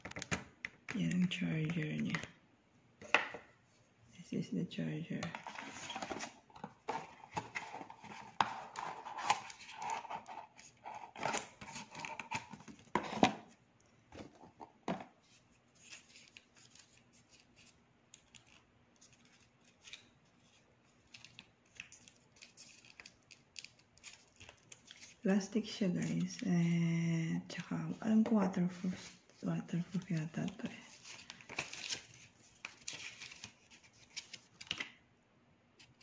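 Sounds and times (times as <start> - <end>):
paper and cardboard rustling: 5.3 - 13.6, 27.9 - 34.8.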